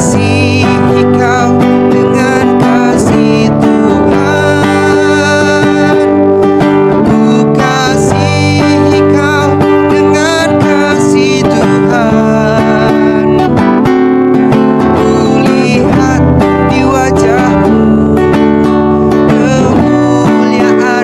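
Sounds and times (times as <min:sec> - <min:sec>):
acoustic guitar strumming: 0:00.0 - 0:21.0
man singing: 0:00.0 - 0:21.0.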